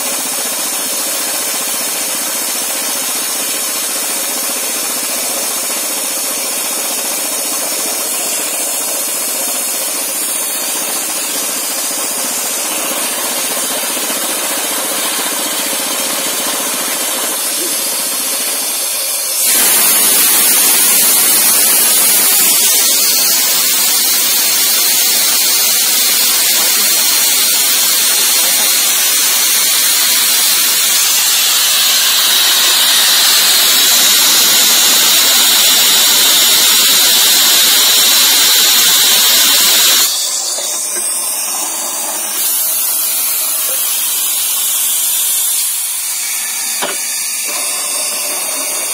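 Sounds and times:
air hiss of rock drill: 0:17.3 - 0:48.9.

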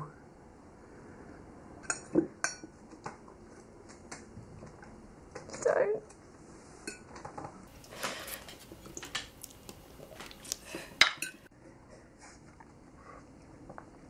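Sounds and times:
forks clinking on plates: 0:10.7 - 0:11.5.

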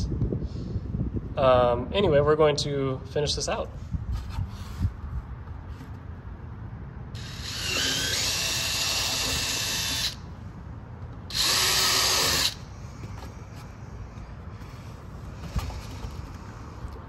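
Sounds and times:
cordless drill drilling plastic: 0:07.2 - 0:10.2, 0:11.3 - 0:12.6.

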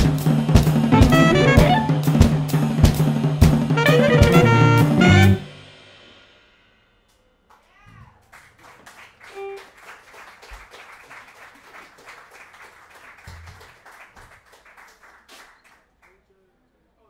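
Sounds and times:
audience applause: 0:08.2 - 0:16.2.

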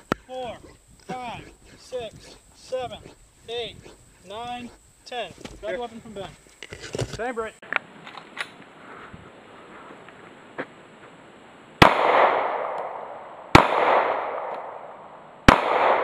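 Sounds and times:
pistol shots with echo: 0:11.8 - 0:16.0.

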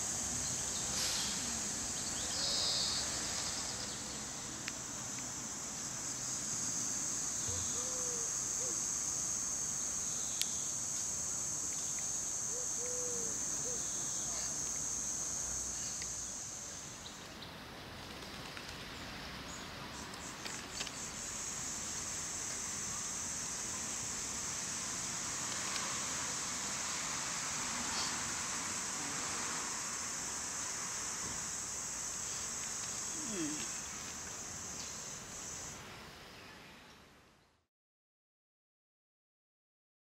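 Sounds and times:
insects buzzing: 0:00.0 - 0:37.0.

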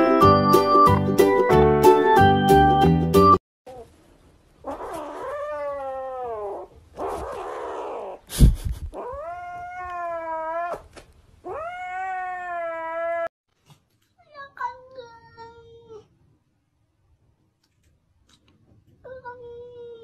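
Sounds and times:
young cat yowling: 0:04.7 - 0:08.2, 0:09.0 - 0:13.3.

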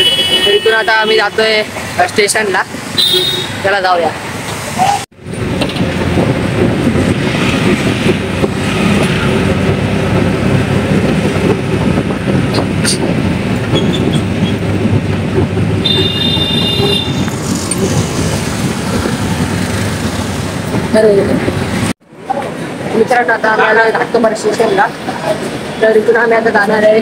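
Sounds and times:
road noise: 0:00.0 - 0:27.0
high-pitched horn: 0:03.0 - 0:03.6, 0:15.8 - 0:17.3.

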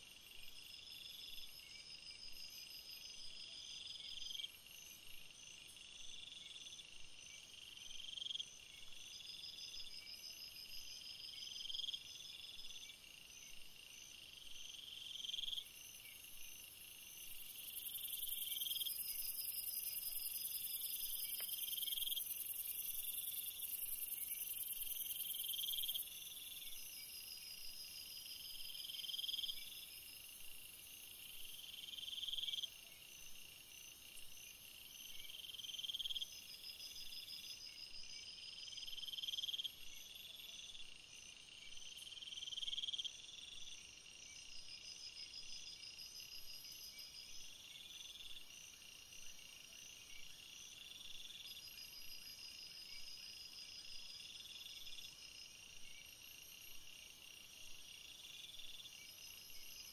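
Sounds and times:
rapid high insect chirps: 0:14.1 - 0:59.9.

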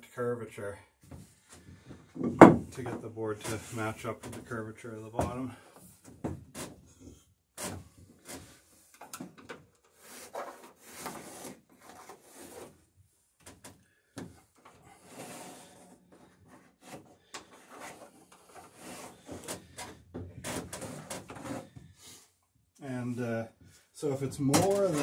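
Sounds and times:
pencil scraping on wood: 0:10.0 - 0:12.8, 0:14.9 - 0:22.2
hands rubbing on wood: 0:16.4 - 0:19.9.

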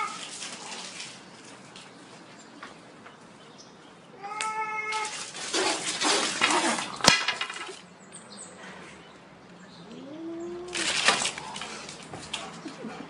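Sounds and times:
broom falling onto concrete: 0:05.0 - 0:07.8.

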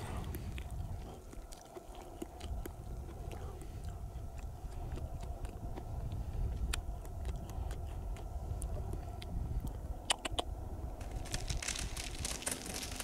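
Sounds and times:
berries crunching while chewed: 0:00.2 - 0:05.9, 0:06.5 - 0:08.7.

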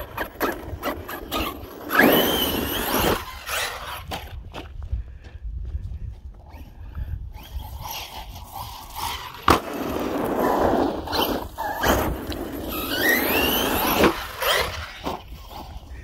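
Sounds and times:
rc truck tyre rumble on asphalt: 0:00.0 - 0:16.0
electric motor whine: 0:07.4 - 0:15.9.

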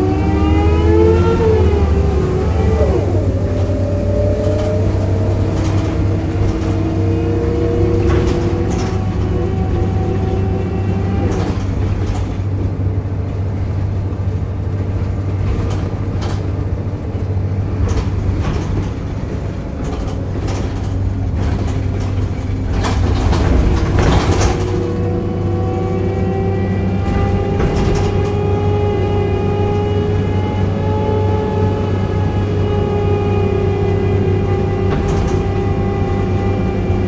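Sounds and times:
bus engine drone: 0:00.0 - 0:37.0
body rattles and knocks: 0:04.2 - 0:25.3, 0:27.0 - 0:28.7, 0:34.8 - 0:35.9.

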